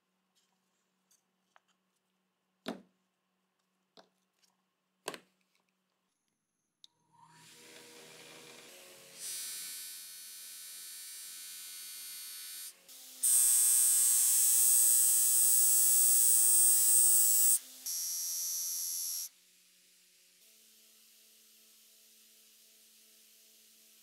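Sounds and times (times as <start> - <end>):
bench grinder buzzing whine: 7.4 - 19.3.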